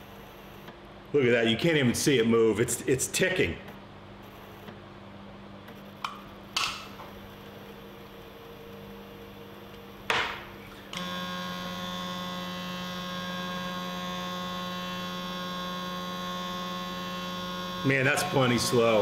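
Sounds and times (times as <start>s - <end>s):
electric motor hum and whine: 0.0s - 0.8s, 3.7s - 19.0s
faint steady hum: 0.0s - 19.0s.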